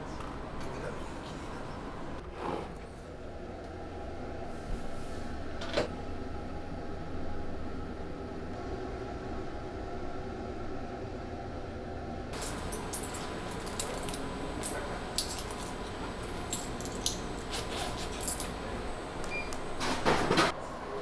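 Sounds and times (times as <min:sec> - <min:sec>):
coins clinking: 0:12.4 - 0:18.7.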